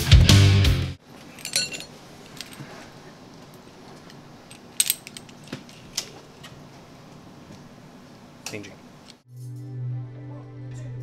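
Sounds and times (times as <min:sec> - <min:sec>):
rock music with guitar: 0:00.0 - 0:01.0
metallic clinks of drum hardware: 0:01.3 - 0:02.7, 0:04.5 - 0:05.8.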